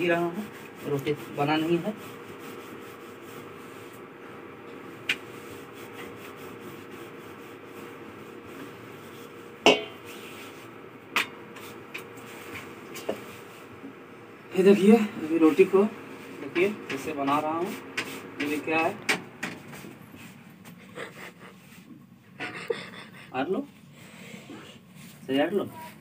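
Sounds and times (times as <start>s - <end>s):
rolling pin rubbing on dough: 0.0s - 10.8s, 11.5s - 13.8s, 14.6s - 19.0s.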